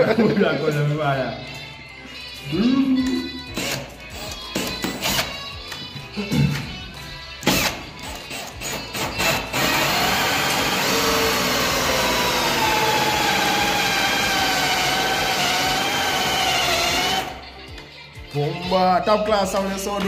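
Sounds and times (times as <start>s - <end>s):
cordless drill cutting hole saw: 7.5s - 17.4s.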